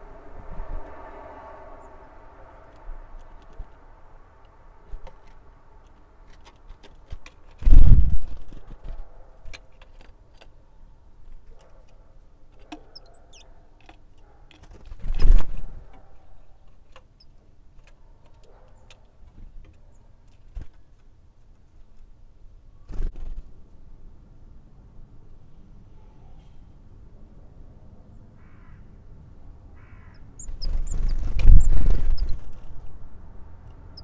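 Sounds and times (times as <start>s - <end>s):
bird wing flutters: 6.4s - 9.6s, 14.6s - 15.9s, 22.9s - 23.5s, 30.5s - 32.9s
faint high bird calls: 12.7s - 13.8s, 28.4s - 29.0s, 29.7s - 32.7s.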